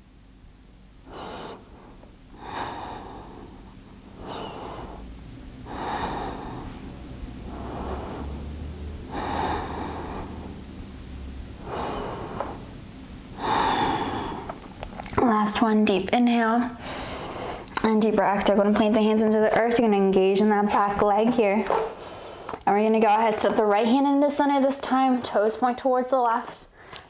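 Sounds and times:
person breathing deeply: 1.0 - 14.8, 16.8 - 17.7, 21.9 - 22.6.

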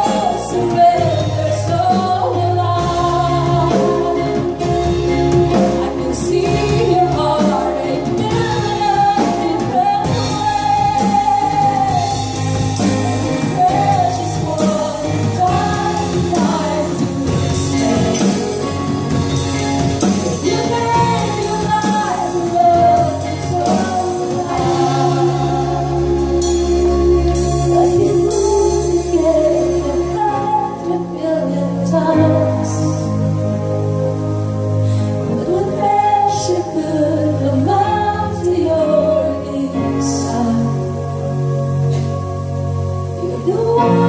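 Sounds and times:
woman singing: 0.0 - 19.2, 20.0 - 33.6, 34.9 - 42.1, 43.0 - 44.0
drum kit beat: 0.0 - 29.2
electric bass: 0.0 - 44.0
keyboard: 0.0 - 44.0.

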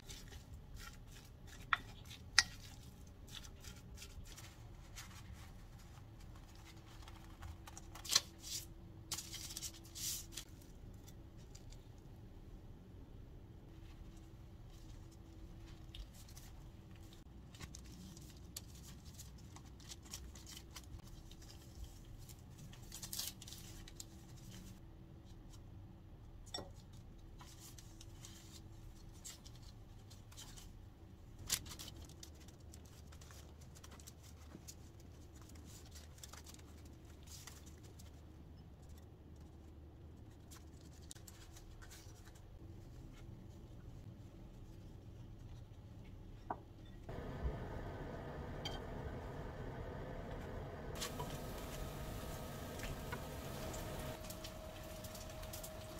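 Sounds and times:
paper wrappers rustling: 0.0 - 11.8, 13.9 - 24.8, 27.4 - 39.6, 40.2 - 43.2, 49.4 - 55.9.

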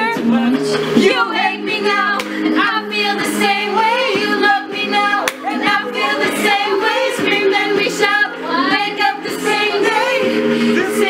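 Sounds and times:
voices singing over chords: 0.0 - 11.0.

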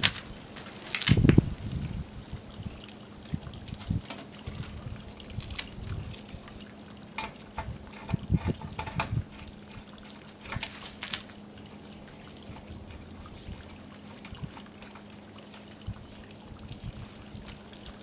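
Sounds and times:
water trickling: 0.0 - 18.0
hose fitting clicks and knocks: 7.1 - 10.8.

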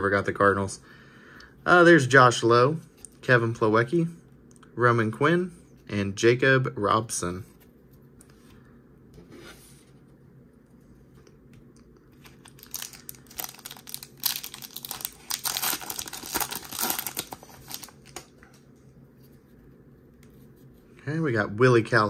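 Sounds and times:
plastic wrapper crinkling and tearing: 12.1 - 18.6.

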